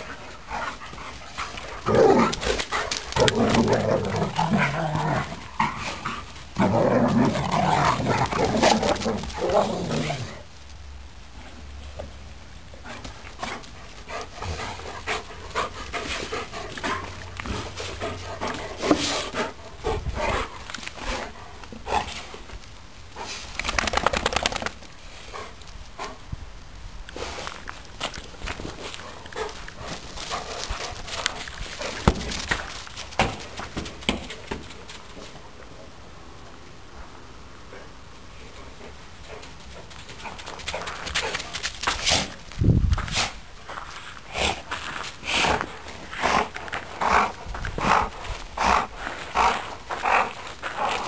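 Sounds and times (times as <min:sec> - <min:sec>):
paws scuffling on gravel: 0:00.0 - 0:10.4, 0:27.2 - 0:35.4, 0:39.2 - 0:51.0
dogs growling: 0:00.1 - 0:10.4
dogs panting: 0:12.8 - 0:22.2.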